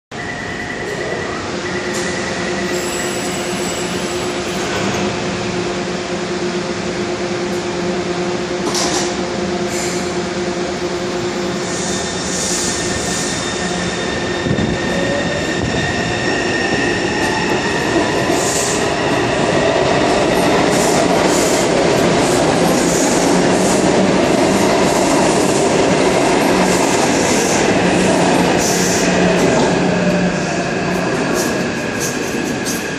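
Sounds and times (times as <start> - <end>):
electric train hum: 0.1 - 32.9
train wheel noise and rumble: 0.1 - 32.9.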